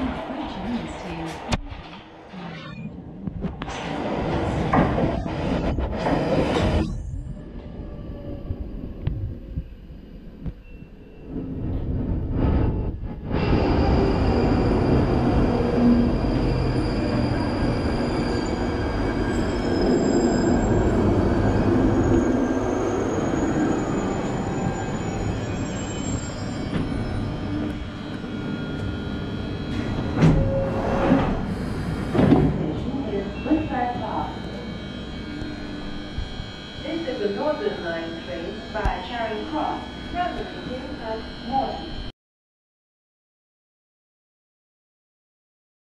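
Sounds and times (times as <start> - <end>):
train rumbling: 3.2 - 35.0
train whining tones: 3.7 - 42.1
train doors sliding open: 29.7 - 32.7.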